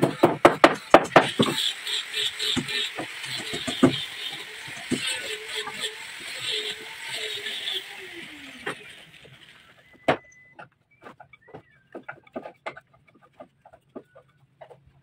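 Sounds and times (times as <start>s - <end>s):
sharp knocks and clicks: 0.0s - 1.7s, 10.0s - 15.0s.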